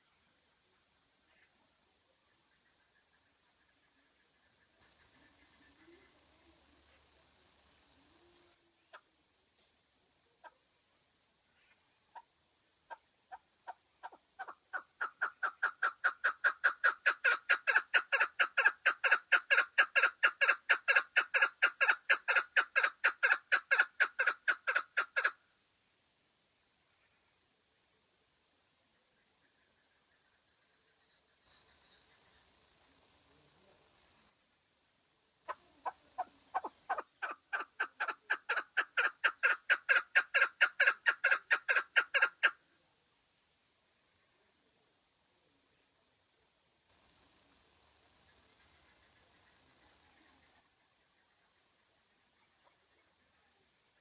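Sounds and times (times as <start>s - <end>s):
partridge calling: 12.9s - 25.4s, 35.5s - 42.6s.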